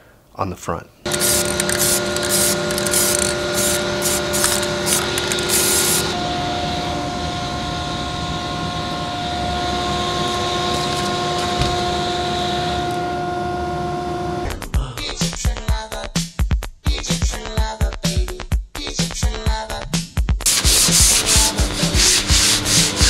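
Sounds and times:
aerosol spray can hissing: 1.1s - 6.2s, 20.5s - 23.0s.

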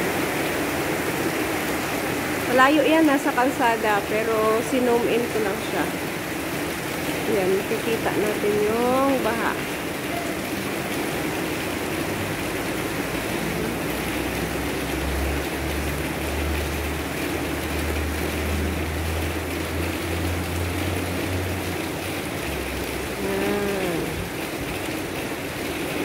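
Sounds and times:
heavy rain falling: 0.0s - 26.0s.

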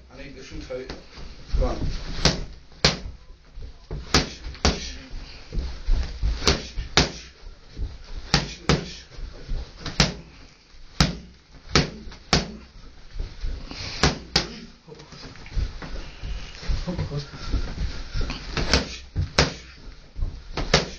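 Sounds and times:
boxing gloves striking focus pads: 2.1s - 3.2s, 3.9s - 5.0s, 6.3s - 9.1s, 9.8s - 10.3s, 11.0s - 12.6s, 13.9s - 14.7s, 18.5s - 19.7s, 20.6s - 20.9s.

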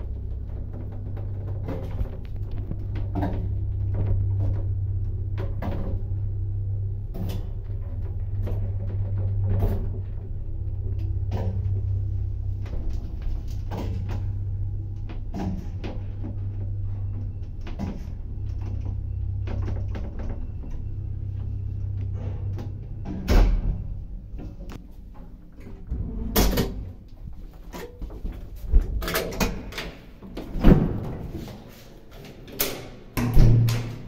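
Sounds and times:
lift humming: 0.0s - 34.0s.

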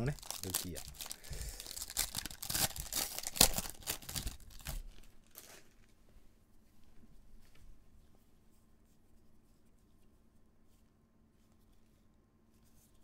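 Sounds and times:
plastic wrapper crinkling and tearing: 0.0s - 5.9s.

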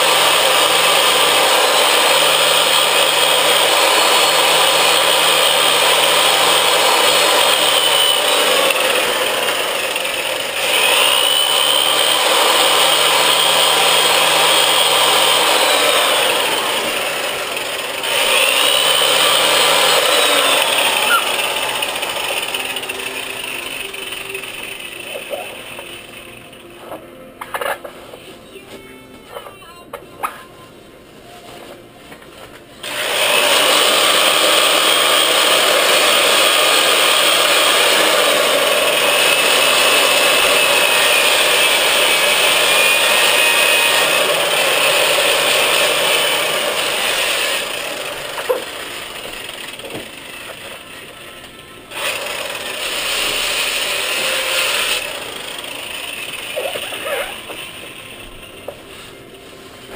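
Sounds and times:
sander motor whine and rasp: 0.0s - 26.4s.

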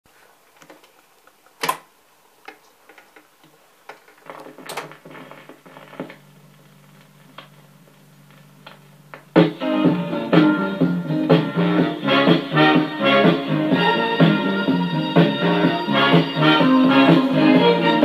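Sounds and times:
record player mechanism clicks and clunks: 0.6s - 1.9s, 3.9s - 6.2s
low hum through speaker: 2.8s - 12.0s.

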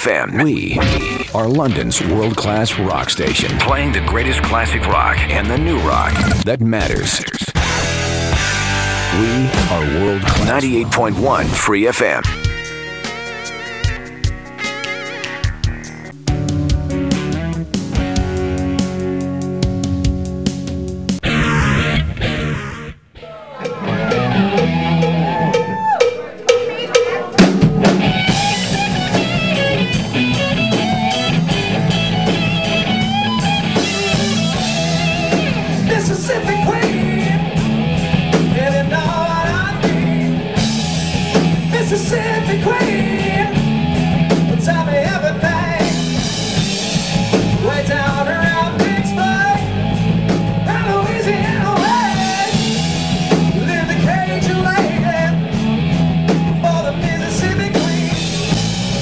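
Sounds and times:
bass guitar: 0.0s - 59.0s
electric guitars: 0.7s - 6.4s, 7.6s - 59.0s
drum kit: 0.7s - 59.0s
male singer: 35.8s - 37.6s, 38.4s - 40.4s, 41.7s - 43.6s, 44.5s - 46.0s, 47.5s - 49.7s, 50.6s - 52.6s, 53.5s - 55.4s, 56.6s - 58.2s.

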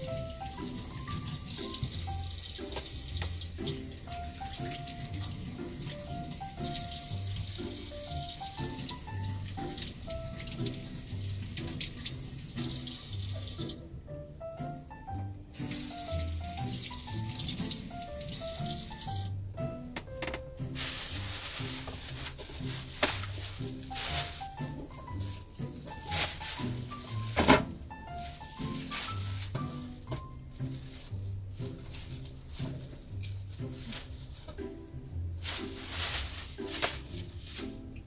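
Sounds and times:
faucet water running into sink: 0.0s - 13.9s, 15.5s - 19.4s
background music with steady beat: 0.0s - 38.0s.

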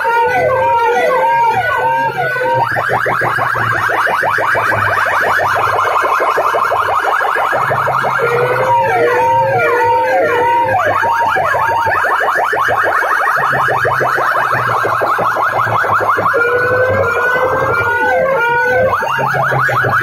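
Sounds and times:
rising siren sweep: 0.0s - 20.0s
warbling siren: 0.0s - 20.0s.

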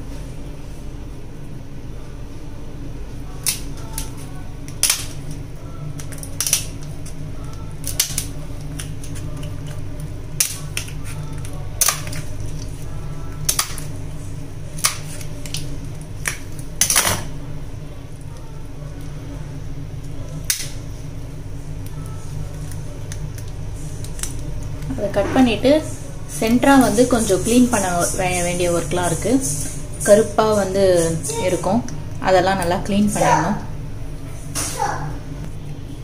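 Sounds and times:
steady low hum: 0.0s - 36.0s
scissors cracking shell: 3.4s - 5.4s, 6.0s - 12.7s, 20.4s - 20.8s.

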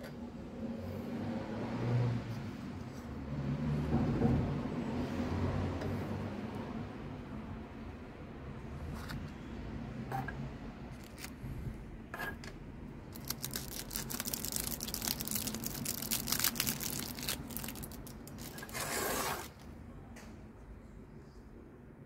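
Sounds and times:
wrapping crackling and rustling: 13.1s - 19.6s
short scraping rub: 18.6s - 19.6s.

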